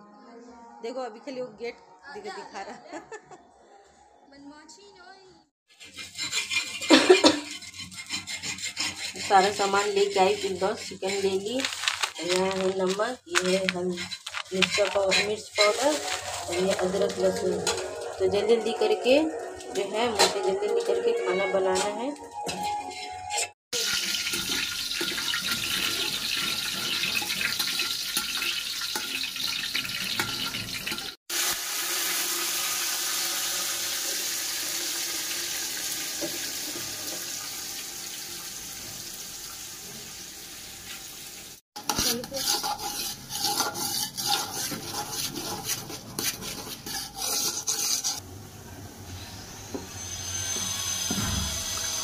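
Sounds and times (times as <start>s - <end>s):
ladle stirring in metal pot: 5.7s - 21.0s, 22.5s - 31.1s, 41.8s - 48.2s
metal utensils clinking and scraping: 5.7s - 31.2s, 41.8s - 48.2s
running water washing rice: 23.7s - 48.2s.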